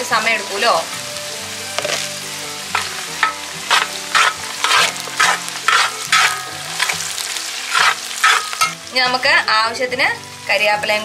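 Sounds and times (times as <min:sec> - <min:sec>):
garlic sizzling in oil: 0:00.0 - 0:11.0
metal spoon scraping pot: 0:02.7 - 0:08.8.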